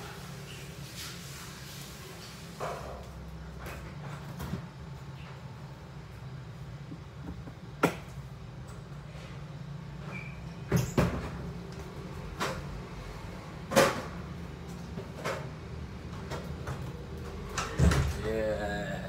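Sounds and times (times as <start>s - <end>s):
steady low hum: 3.3s - 10.1s
knocks and bumps: 6.8s - 8.2s.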